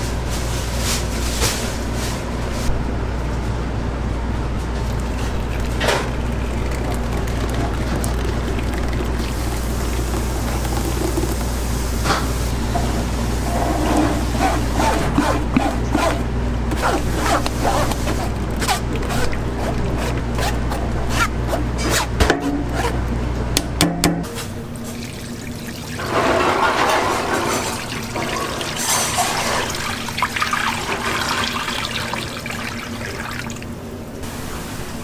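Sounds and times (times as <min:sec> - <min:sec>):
liquid pouring and splashing: 0:04.8 - 0:12.6, 0:17.0 - 0:20.4, 0:24.8 - 0:33.8
ladle scraping metal strainer: 0:26.0 - 0:30.0.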